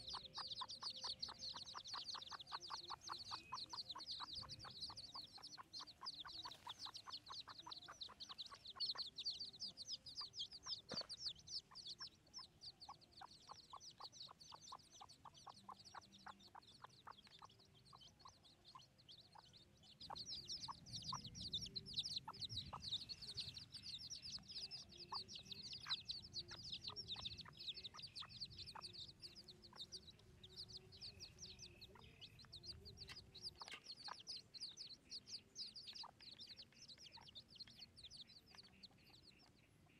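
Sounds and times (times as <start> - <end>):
chicks peeping: 0.0 - 39.9
hen clucking softly: 0.0 - 39.9.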